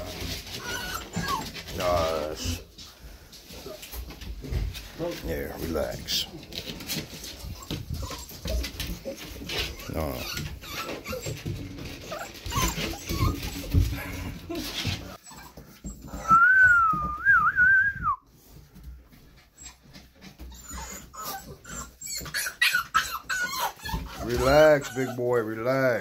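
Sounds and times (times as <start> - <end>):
puppy whining: 0.0 - 2.8, 6.1 - 17.6, 19.3 - 26.0
rustling: 0.0 - 15.9.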